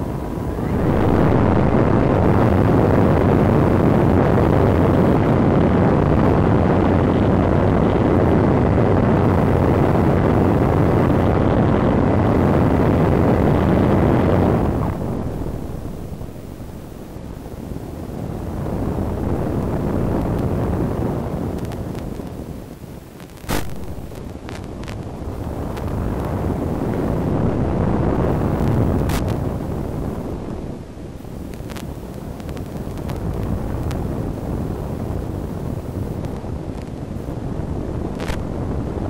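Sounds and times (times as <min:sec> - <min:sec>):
wind noise on microphone: 0:00.0 - 0:39.0.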